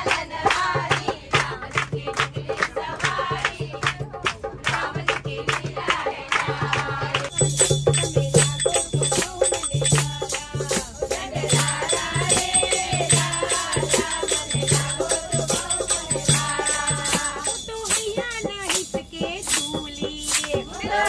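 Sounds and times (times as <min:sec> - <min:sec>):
hand-clapping: 0:00.0 - 0:18.1, 0:18.7 - 0:21.0
dholak drum beating: 0:00.0 - 0:21.0
women singing devotional song: 0:00.0 - 0:21.0
tambourine jingles: 0:07.3 - 0:21.0.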